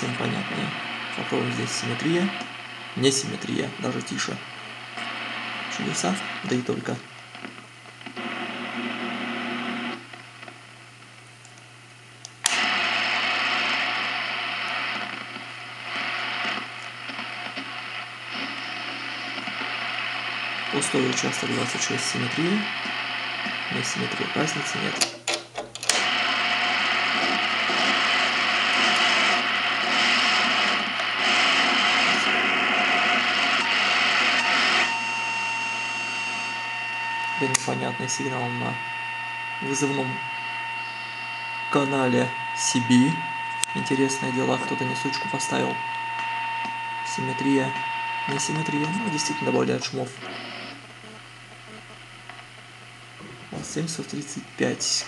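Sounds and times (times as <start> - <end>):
radio static hiss: 0.0 - 25.2, 25.9 - 55.0.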